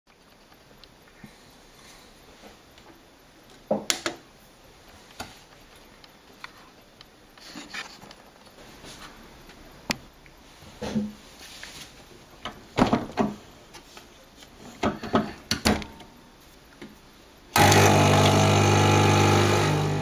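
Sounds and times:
soft rustle: 4.7s - 9.7s, 10.3s - 12.4s.

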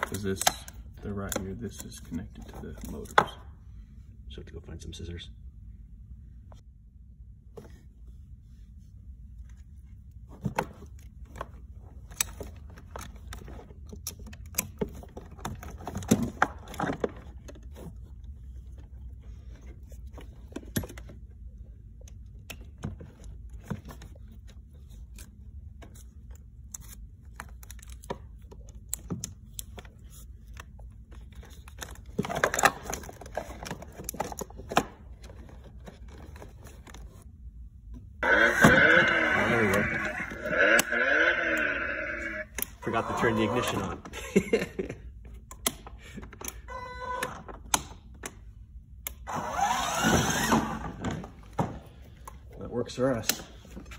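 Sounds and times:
clicks and rustles of wiring: 0.0s - 3.5s, 9.3s - 38.0s
low steady hum: 0.0s - 49.4s.

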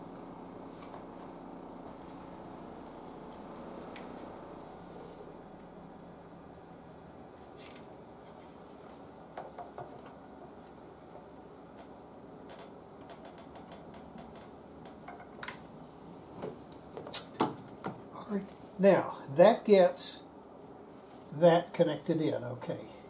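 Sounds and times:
low background hum: 0.0s - 23.0s
hand tools clicking and tapping: 9.4s - 10.2s.

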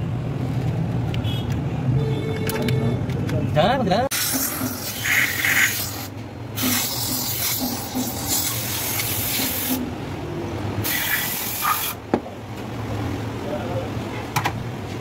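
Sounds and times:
spray can hissing: 4.1s - 9.8s, 10.8s - 12.0s.

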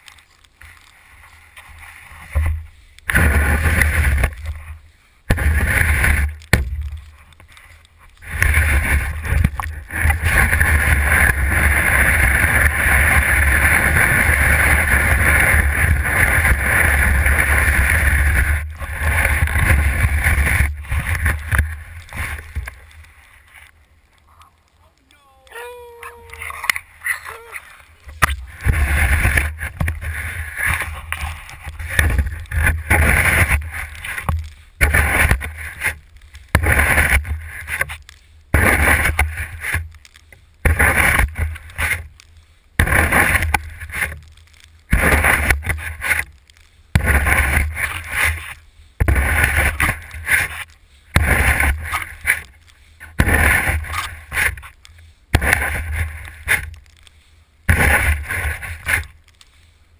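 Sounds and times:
shovel scraping over paving: 3.1s - 6.4s, 8.2s - 23.7s, 26.3s - 39.8s, 40.6s - 42.1s, 42.8s - 59.7s
shovel crunching through snow: 28.2s - 37.9s, 38.6s - 39.8s, 40.7s - 42.1s, 42.8s - 46.3s, 47.0s - 52.5s, 53.2s - 54.7s, 55.4s - 56.7s, 57.7s - 59.2s.

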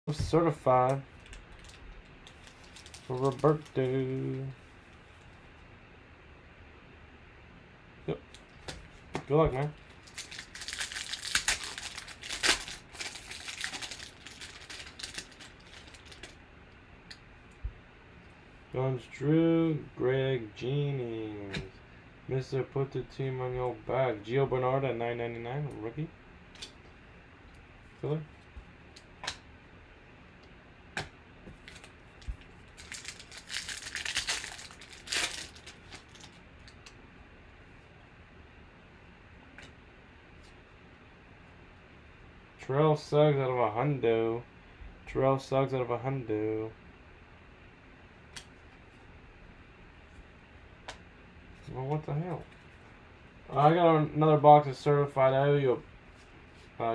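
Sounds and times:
foil wrapper tearing and crinkling: 1.2s - 3.9s, 9.9s - 16.4s, 31.6s - 36.9s.

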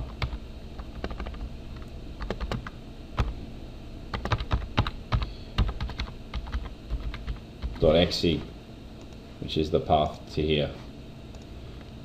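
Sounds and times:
keyboard typing: 0.1s - 3.3s, 4.1s - 7.8s.

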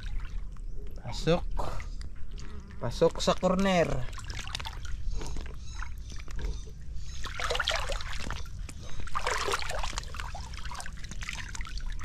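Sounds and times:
creek water trickling and sloshing: 0.0s - 12.0s.

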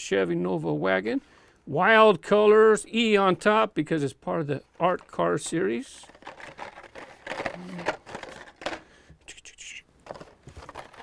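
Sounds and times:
plastic packs rustling and clicking: 4.7s - 9.2s, 10.0s - 11.0s.

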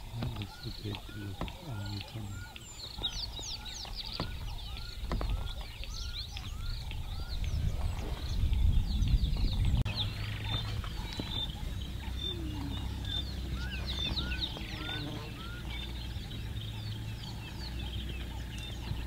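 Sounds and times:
birds chirping and calling: 0.0s - 19.0s
low rumble: 5.9s - 19.0s.

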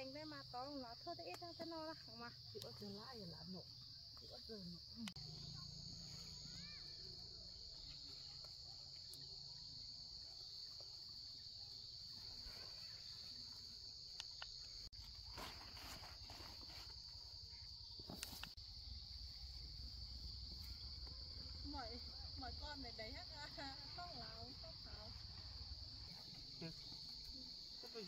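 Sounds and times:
insects chirring: 0.0s - 28.0s
rustling: 14.7s - 17.2s.

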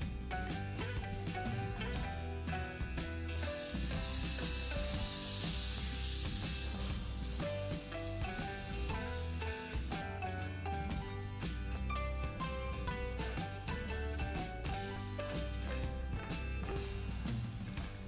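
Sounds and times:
background music: 0.0s - 18.0s
hot dogs sizzling in a frying pan: 0.6s - 10.0s, 14.7s - 16.0s, 16.7s - 18.0s.

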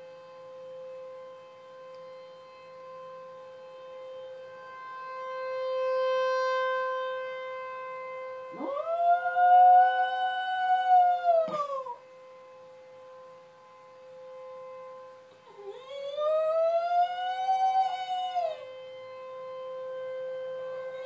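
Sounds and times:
tornado warning siren: 0.0s - 21.0s
dog howling: 8.5s - 12.0s, 15.4s - 18.7s, 20.7s - 21.0s.

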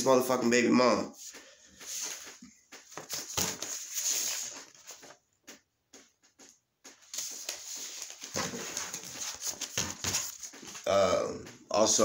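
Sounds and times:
paper rustling and crackling: 2.8s - 5.1s, 7.0s - 10.9s.

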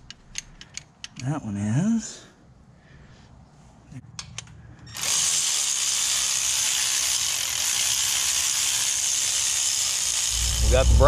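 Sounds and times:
power ratchet whirring: 4.9s - 11.0s.

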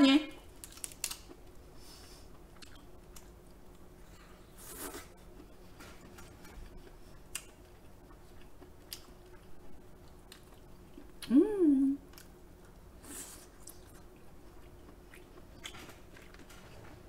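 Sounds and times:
chewing: 4.9s - 11.2s, 13.4s - 16.9s.

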